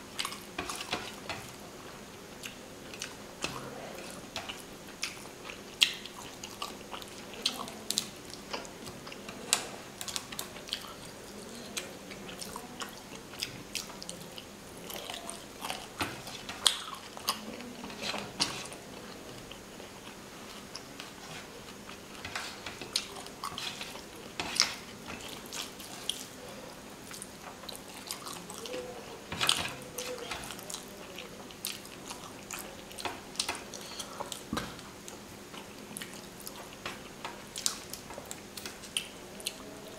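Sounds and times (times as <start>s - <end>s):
chewing and wet mouth smacks: 37.6s - 39.6s.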